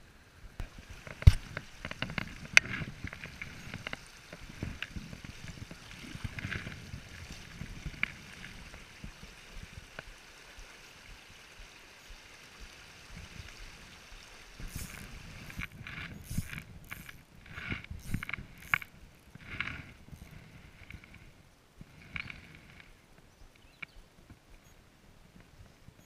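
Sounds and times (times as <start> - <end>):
creek flowing over stones: 0.0 - 24.4
small clicks and knocks: 1.0 - 6.8, 14.6 - 21.3, 22.0 - 22.9.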